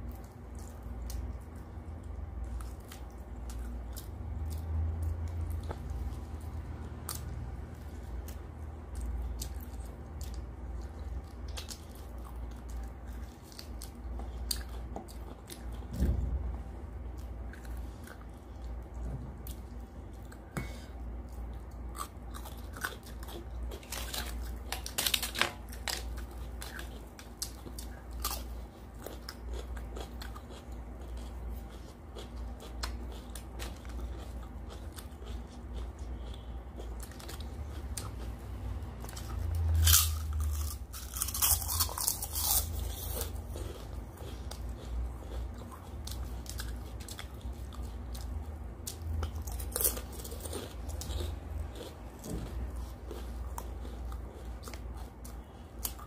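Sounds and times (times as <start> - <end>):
steady low hum: 0.0 - 56.0
chewing and mouth smacking: 21.2 - 38.4, 39.0 - 56.0
crisp crunching: 22.3 - 30.6, 39.1 - 45.6.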